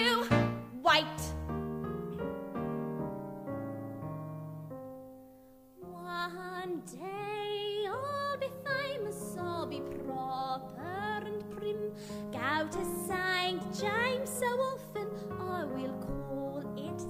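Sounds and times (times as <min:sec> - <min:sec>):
woman singing with vibrato: 0:00.0 - 0:01.4, 0:05.8 - 0:17.0
piano chords: 0:00.0 - 0:17.0.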